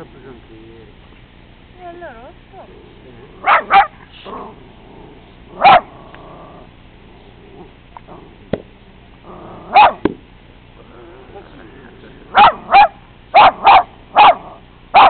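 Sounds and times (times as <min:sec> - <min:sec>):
hound barking: 0:03.4 - 0:04.4, 0:05.5 - 0:06.0, 0:09.6 - 0:10.1, 0:12.3 - 0:15.0.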